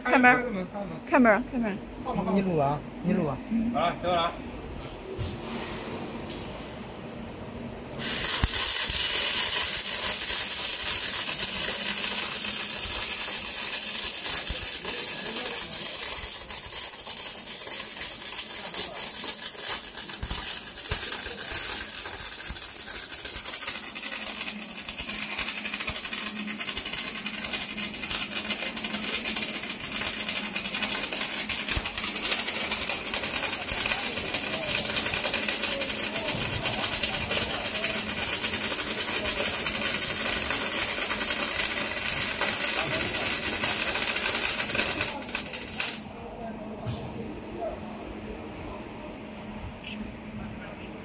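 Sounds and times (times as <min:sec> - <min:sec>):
welding arcs crackling: 0:07.9 - 0:46.1.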